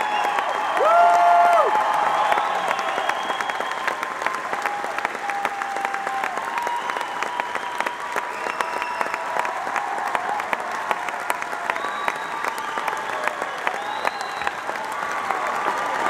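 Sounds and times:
audience applauding: 0.0 - 16.0.

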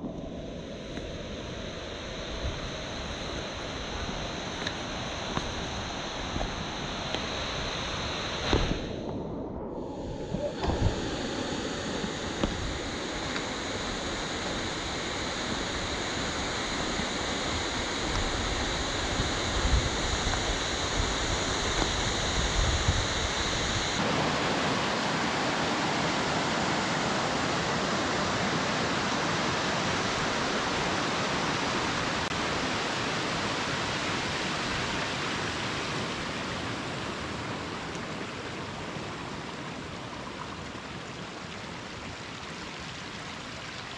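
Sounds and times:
stream rushing over boulders: 10.4 - 43.9.

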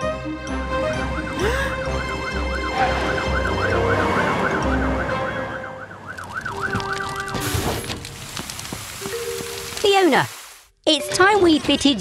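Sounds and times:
background music: 0.0 - 7.4
cartoon siren wailing: 2.6 - 7.4.

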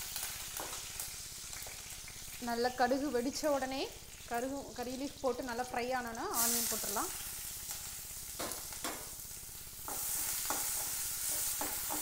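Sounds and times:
seeds sizzling in hot oil: 0.0 - 12.0
spatula knocking against pan: 9.9 - 12.0.

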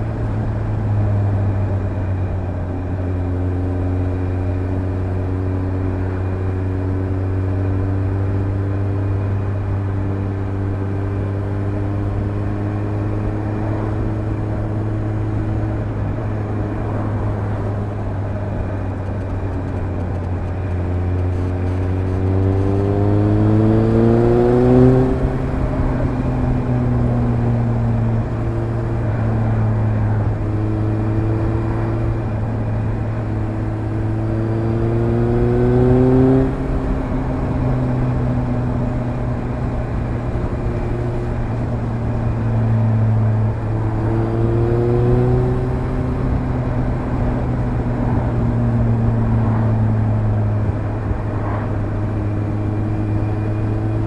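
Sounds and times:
motorcycle engine revving: 19.0 - 29.3, 30.0 - 54.0.

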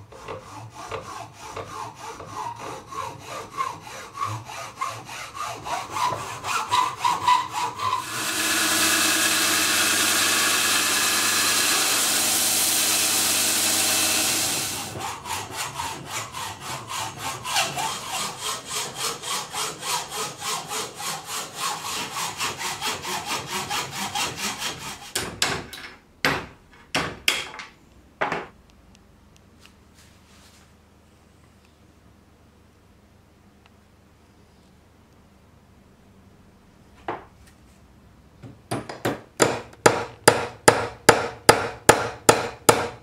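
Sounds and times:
hand saw cutting: 0.1 - 25.3
belt grinder running: 8.0 - 15.0.

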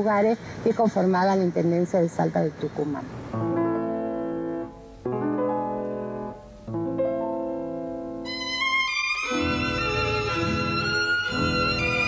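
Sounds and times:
high violin melody: 8.2 - 12.0.

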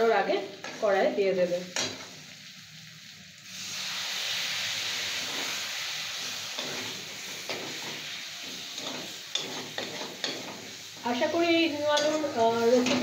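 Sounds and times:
lemon juice hissing on hot pan: 0.0 - 12.8
spatula scraping potatoes: 6.6 - 11.3.

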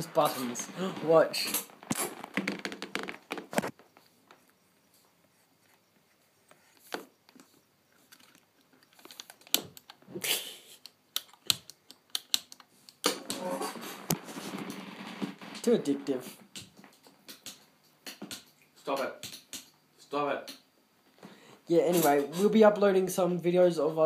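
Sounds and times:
rubbing and handling noise: 0.0 - 10.2, 11.3 - 17.3, 21.8 - 22.8.

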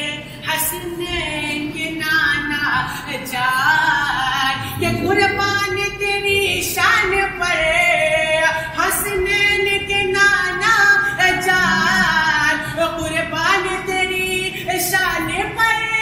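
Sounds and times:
person singing devotional song: 4.3 - 9.9, 10.6 - 15.6.

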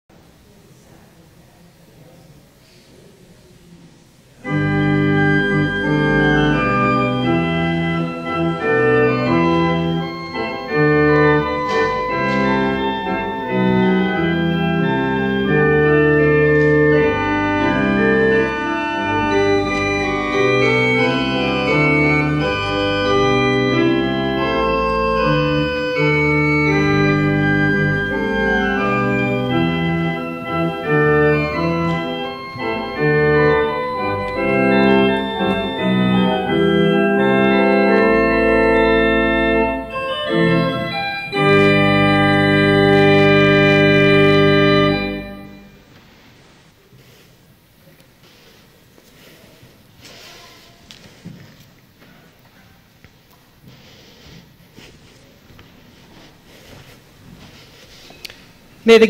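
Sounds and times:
organ playing held chords: 4.4 - 46.0.

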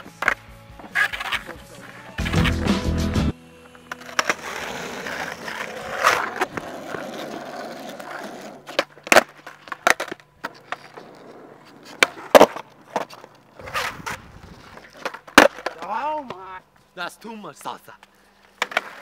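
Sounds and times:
skateboard wheels rolling on asphalt: 0.0 - 16.6, 18.3 - 19.0
skateboard clacking on pavement: 11.8 - 13.9, 18.6 - 19.0.

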